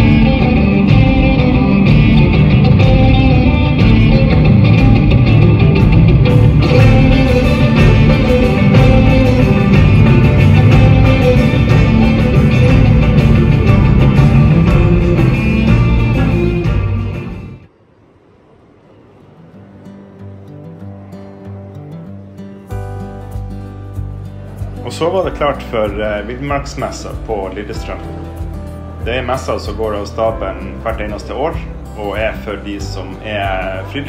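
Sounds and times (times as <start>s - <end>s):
orchestra and band music: 5.8s - 17.6s.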